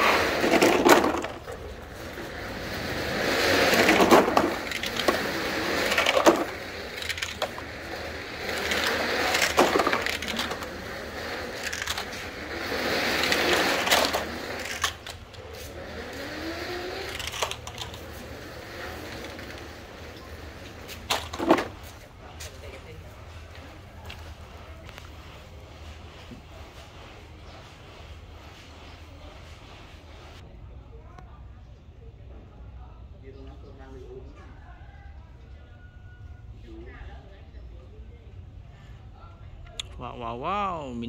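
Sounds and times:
toy trucks rolling over dirt: 0:00.0 - 0:26.6.

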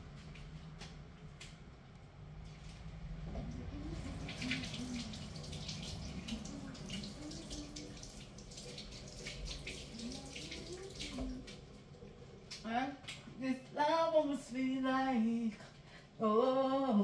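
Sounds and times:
splashing water: 0:03.6 - 0:12.0.

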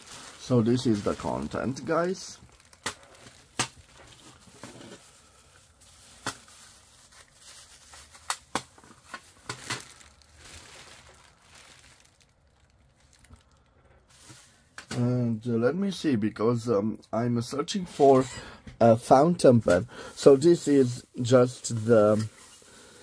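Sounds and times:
plastic packaging crinkling: 0:00.0 - 0:14.9, 0:20.1 - 0:23.0.

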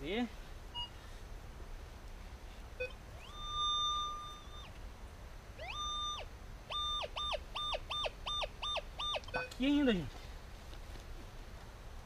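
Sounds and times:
metal detector beep: 0:02.8 - 0:04.8, 0:05.6 - 0:09.6.

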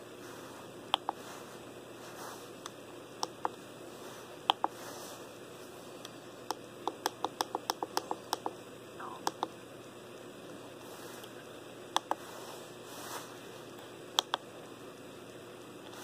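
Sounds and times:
transmitter buttons clicking: 0:06.0 - 0:09.5, 0:12.0 - 0:12.2, 0:14.2 - 0:14.4.

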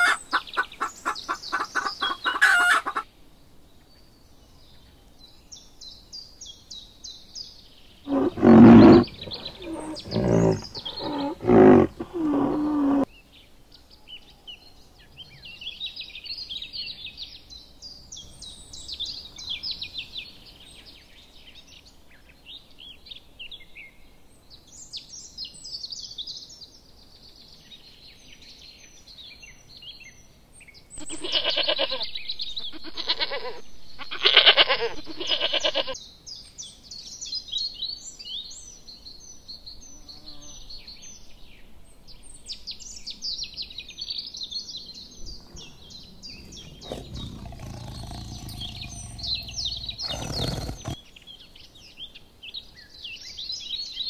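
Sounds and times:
small birds chirping: 0:00.0 - 0:03.0, 0:06.8 - 0:13.1, 0:44.4 - 0:51.0
sheep bleating: 0:31.0 - 0:32.0, 0:32.8 - 0:36.0.

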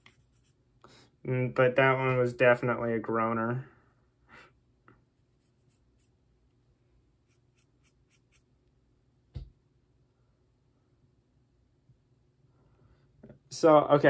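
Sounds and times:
marker scratching: 0:00.0 - 0:00.6, 0:05.3 - 0:06.2, 0:07.2 - 0:08.5.

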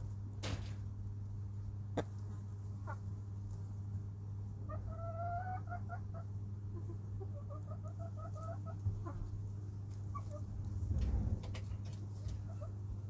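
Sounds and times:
steady low hum: 0:00.0 - 0:13.0
chicken clucking: 0:01.9 - 0:03.6, 0:04.5 - 0:10.8, 0:11.4 - 0:13.0.

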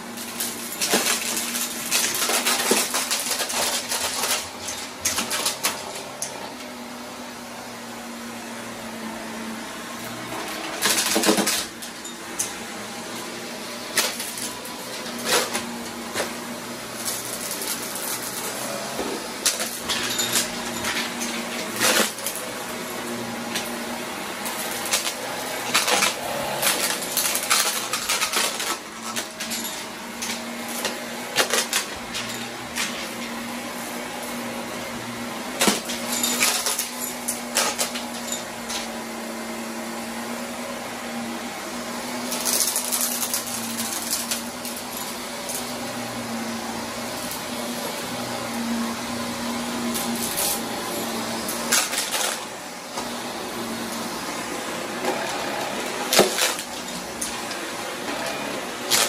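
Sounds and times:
vacuum cleaner motor hum: 0:00.0 - 0:59.0
debris rattling into vacuum: 0:10.4 - 0:12.6, 0:49.8 - 0:59.0.

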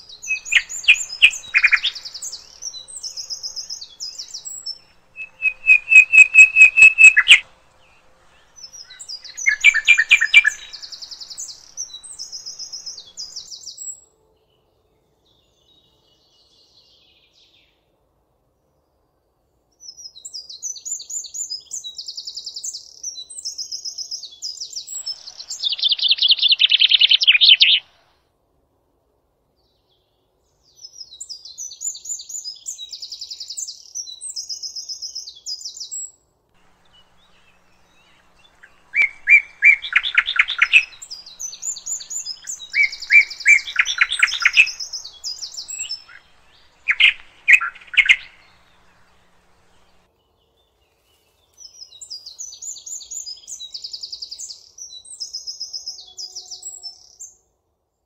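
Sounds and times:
songbirds trilling and warbling: 0:00.0 - 0:13.9, 0:24.5 - 0:28.1, 0:36.6 - 0:50.3.

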